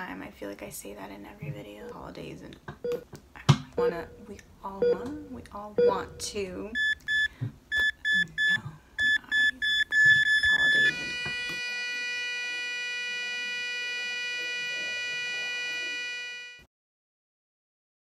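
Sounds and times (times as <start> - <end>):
long steady tone: 3.8 - 16.6
short high beeps: 6.8 - 11.6.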